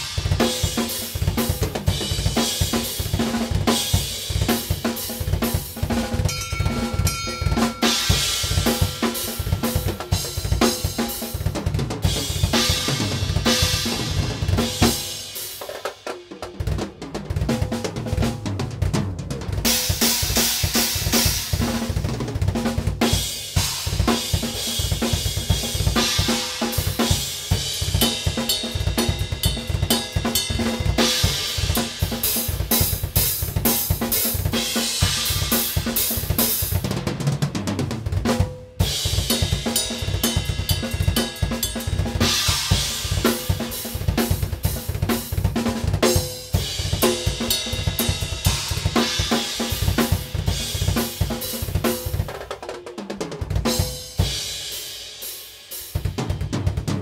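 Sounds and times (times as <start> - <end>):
drum kit playing fast: 0.0 - 57.0
cymbal crashes: 6.3 - 10.9.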